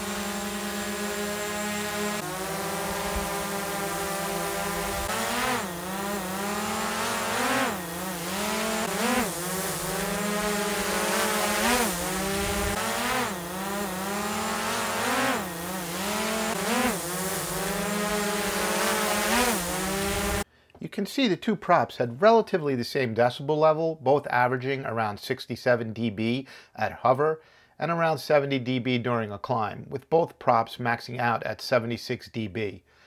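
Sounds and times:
drone propellers whining: 0:00.0 - 0:20.4.

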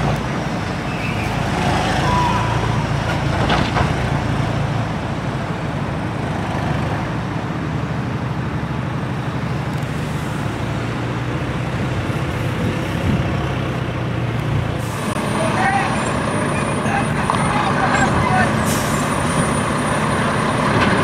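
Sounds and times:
lorry engines droning: 0:00.0 - 0:21.0.

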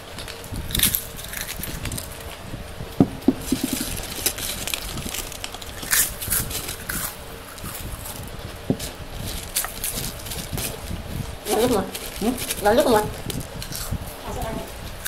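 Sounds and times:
people crunching potato chips: 0:00.0 - 0:02.4, 0:03.4 - 0:14.1
dull knocks: 0:03.0 - 0:04.0.

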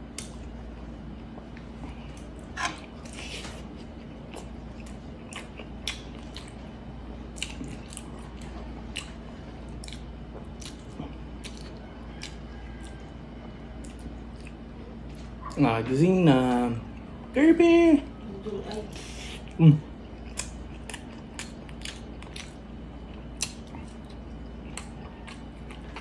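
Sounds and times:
wet chewing: 0:01.3 - 0:06.7, 0:07.3 - 0:13.2, 0:13.8 - 0:15.6, 0:18.7 - 0:26.0.

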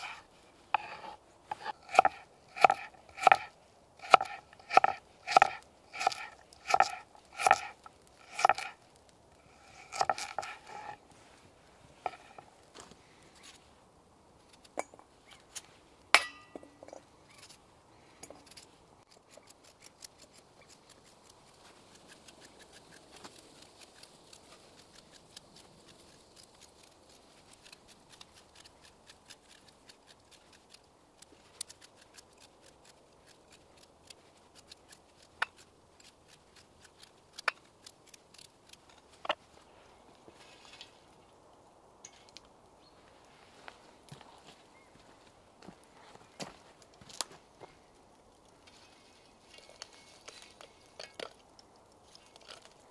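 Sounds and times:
knife chopping on wooden board: 0:00.8 - 0:07.7.

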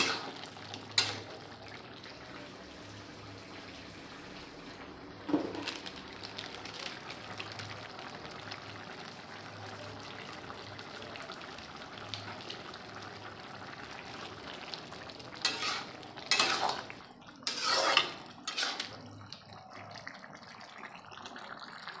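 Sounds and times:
ladle scraping a pan: 0:00.0 - 0:00.4, 0:15.4 - 0:19.1
curry sizzling in a pan: 0:00.0 - 0:22.0.

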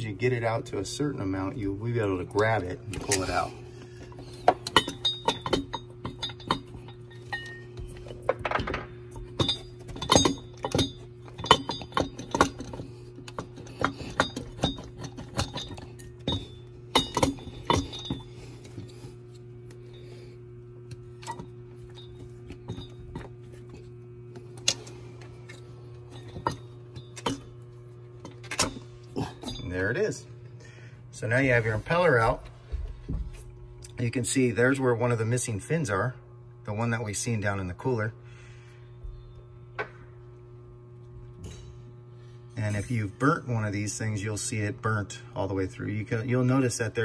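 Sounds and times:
steady low hum: 0:00.0 - 0:47.0
screwdrivers scraping metal: 0:09.2 - 0:18.9.

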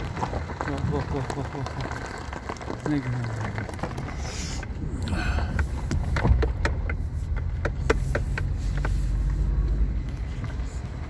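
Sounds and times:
car cabin rumble: 0:03.4 - 0:11.0
sharp knocks and clicks: 0:05.5 - 0:09.0.

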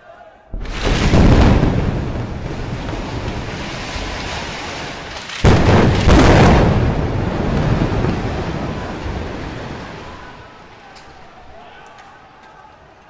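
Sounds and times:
explosions with long rumble: 0:00.5 - 0:10.3.

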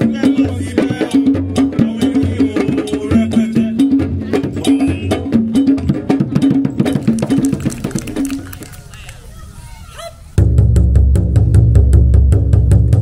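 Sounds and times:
deep drum beats: 0:00.0 - 0:08.7, 0:10.4 - 0:13.0
dry clicking percussion: 0:00.0 - 0:09.3.

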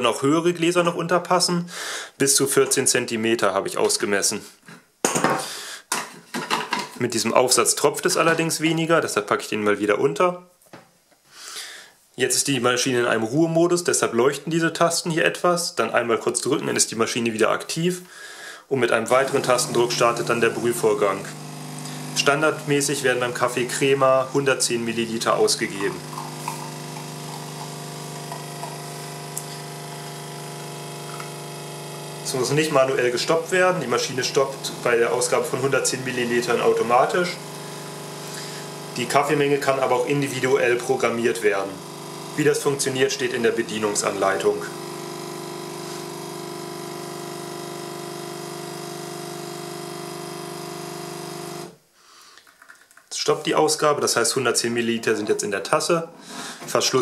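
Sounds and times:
coffee machine pump humming: 0:18.9 - 0:51.8
coffee running into glass: 0:19.1 - 0:31.6, 0:32.2 - 0:50.0.

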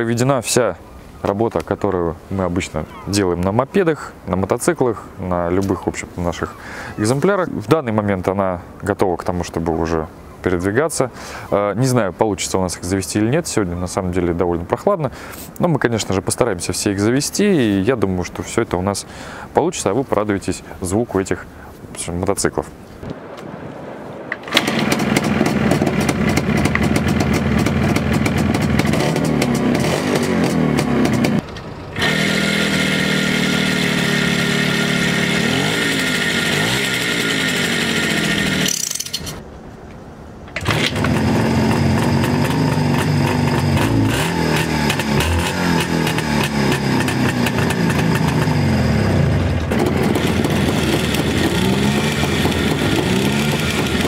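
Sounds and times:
two-stroke motorcycle engines revving: 0:24.5 - 0:39.4, 0:40.6 - 0:54.0.

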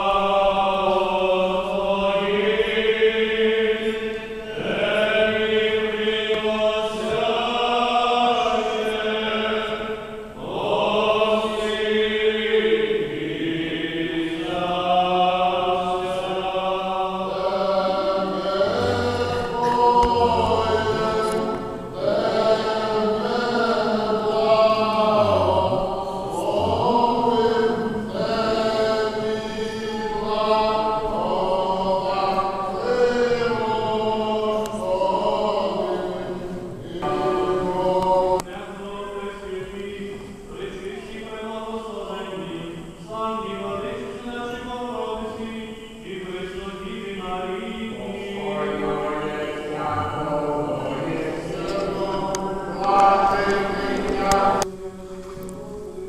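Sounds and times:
voices chanting: 0:00.0 - 0:54.8.

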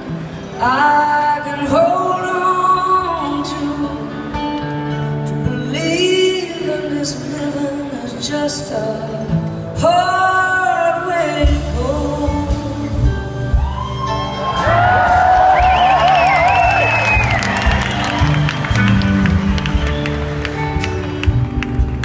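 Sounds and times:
acoustic guitar: 0:00.0 - 0:22.0
woman singing a slow ballad: 0:00.6 - 0:14.0
band accompaniment: 0:11.4 - 0:22.0
low bass notes: 0:11.5 - 0:22.0.

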